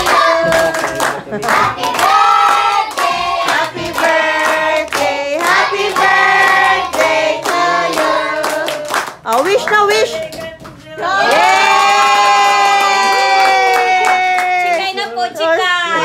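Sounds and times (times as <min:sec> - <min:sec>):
hands clapping: 0:00.0 - 0:10.8
group singing birthday song: 0:00.0 - 0:11.8.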